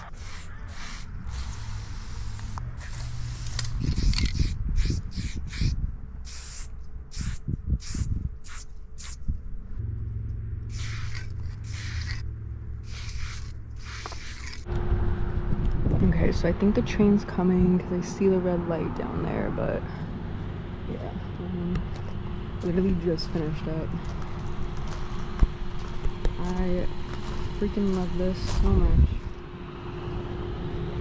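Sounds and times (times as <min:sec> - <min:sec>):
spray paint can hissing: 0:00.0 - 0:09.3, 0:10.7 - 0:12.2, 0:12.8 - 0:14.7
low rumble: 0:00.0 - 0:31.0.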